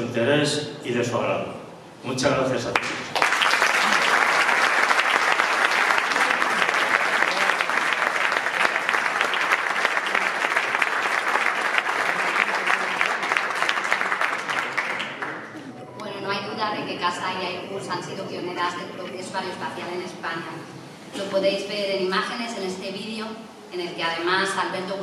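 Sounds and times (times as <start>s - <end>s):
audience applauding: 2.7s - 15.7s.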